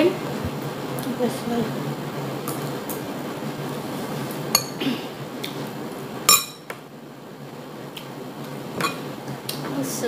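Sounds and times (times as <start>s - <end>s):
low room hum: 0.0s - 10.0s
cutlery clinking on ceramic plate: 4.6s - 4.8s, 6.3s - 6.7s, 8.8s - 9.0s.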